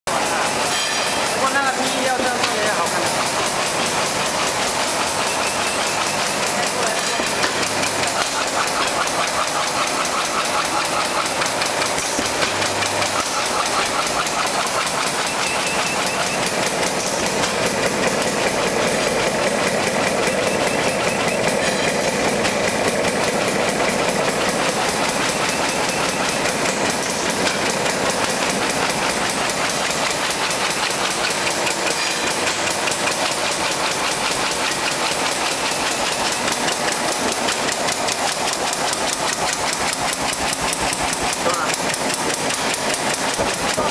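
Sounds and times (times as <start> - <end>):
machine clattering: 0.1 - 43.9
machine hiss: 3.1 - 43.9.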